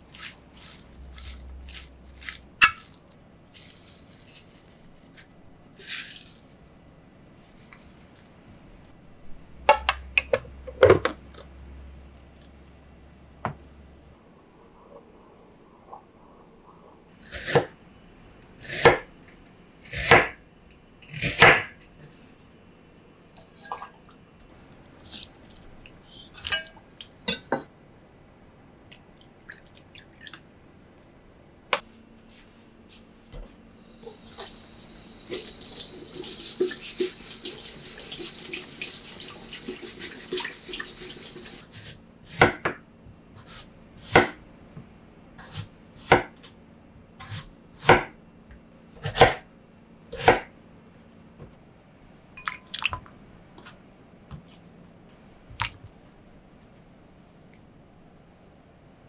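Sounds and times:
faucet running into steel sink: 34.1 - 41.7.

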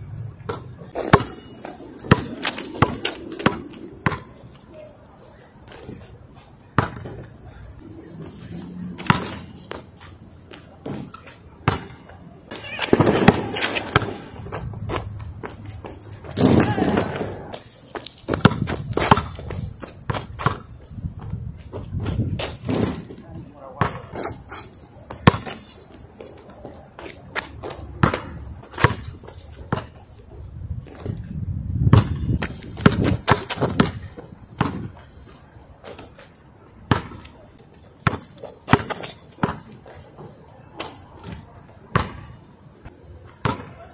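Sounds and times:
basketball bouncing on asphalt: 0.4 - 4.4, 6.7 - 7.2, 8.8 - 23.0, 25.1 - 25.6, 27.4 - 30.0, 30.8 - 35.0, 36.8 - 37.3, 38.0 - 39.8, 41.2 - 43.9.

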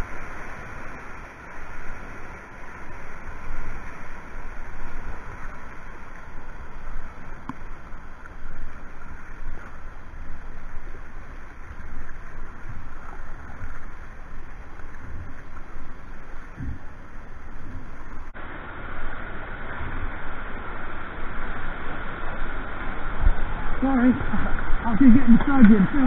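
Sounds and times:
whitewater rushing and splashing: 0.0 - 26.0.

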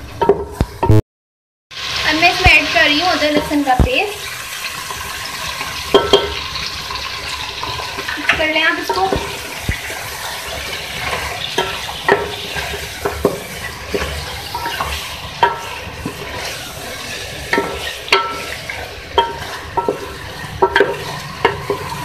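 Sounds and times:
meat sizzling in hot oil: 1.7 - 22.0
wooden spatula scraping a pot: 4.8 - 22.0.

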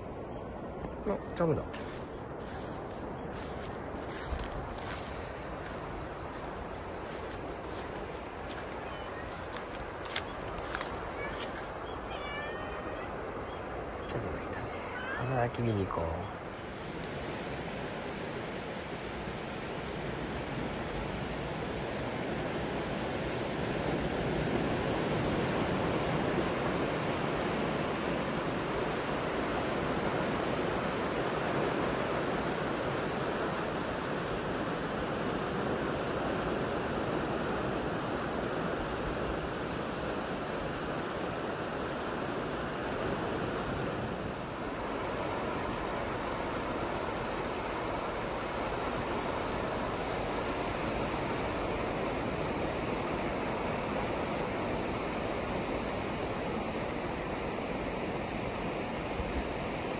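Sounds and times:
wind: 0.0 - 59.9
sea surf breaking: 1.1 - 13.4.

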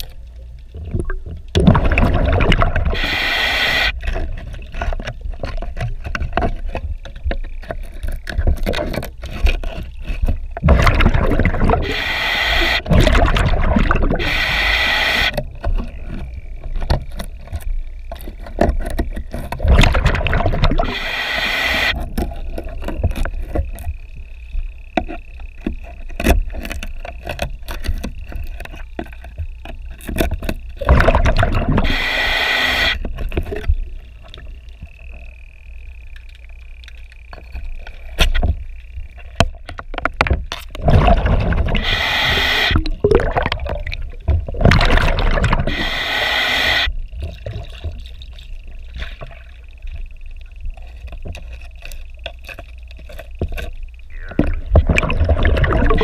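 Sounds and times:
diver regulator bubbling exhalation: 0.7 - 4.6, 10.6 - 16.3, 19.6 - 22.8, 30.8 - 33.1, 40.7 - 48.0, 54.0 - 56.0.

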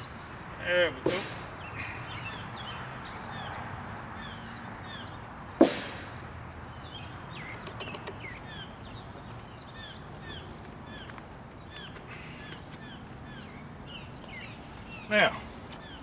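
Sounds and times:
small birds chirping: 0.0 - 16.0
sharp knock: 5.6 - 6.2.

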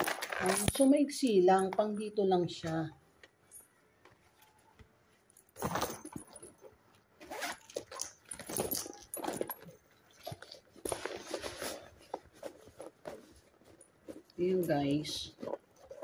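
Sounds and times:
bag material rustling: 5.3 - 16.0
metal chain jingling: 7.3 - 10.7.

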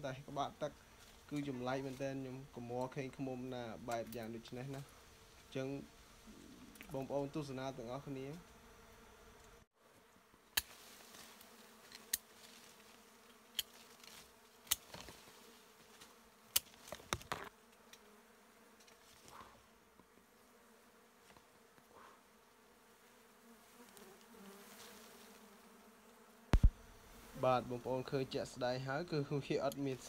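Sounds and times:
bees buzzing: 0.7 - 9.7, 10.8 - 30.0.

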